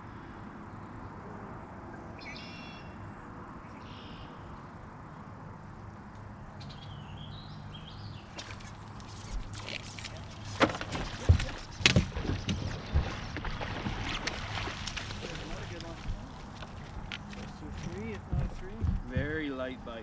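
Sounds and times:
birds singing: 2.0s - 4.6s, 6.5s - 14.1s
thumps on boat deck: 18.0s - 19.5s.

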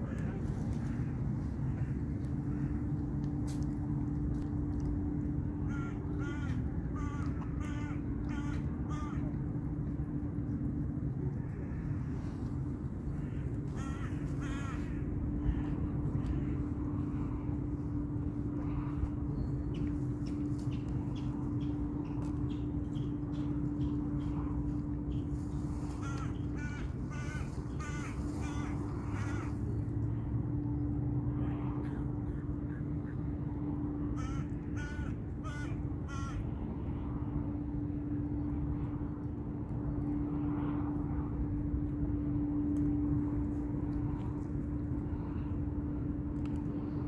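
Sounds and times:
crows cawing: 0.0s - 3.6s, 5.6s - 9.5s, 13.0s - 17.2s, 25.8s - 29.8s, 34.1s - 36.5s
steady low hum: 0.0s - 47.0s.

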